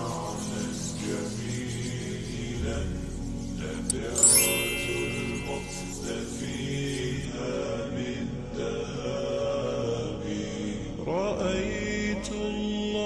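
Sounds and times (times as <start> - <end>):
chanted devotional vocal: 0.0 - 13.0.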